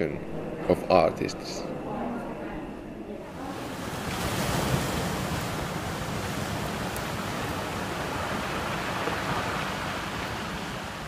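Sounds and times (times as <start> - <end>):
sea surf breaking: 3.3 - 11.0.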